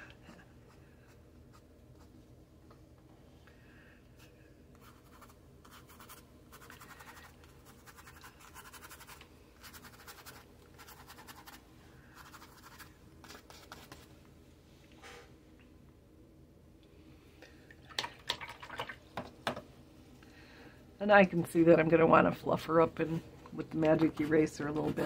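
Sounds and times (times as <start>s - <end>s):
brush scratching on paper: 4.8s - 11.6s, 12.2s - 14.1s.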